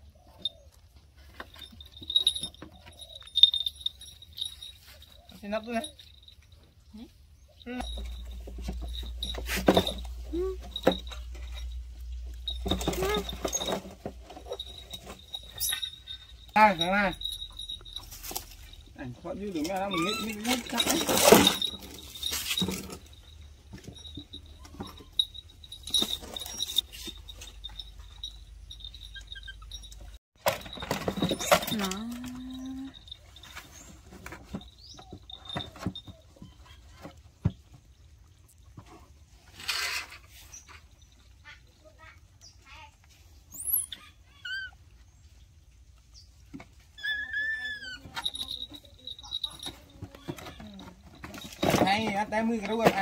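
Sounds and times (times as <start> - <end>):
small metallic clinks: 0.2 - 37.2, 46.1 - 53.0
animal chirps and calls: 43.5 - 44.8, 46.9 - 48.3.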